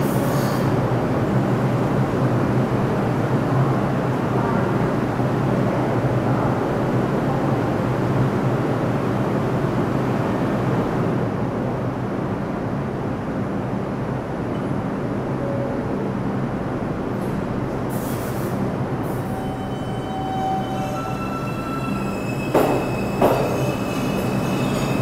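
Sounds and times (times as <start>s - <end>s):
subway train humming: 0.0s - 25.0s
air hissing: 17.9s - 18.6s.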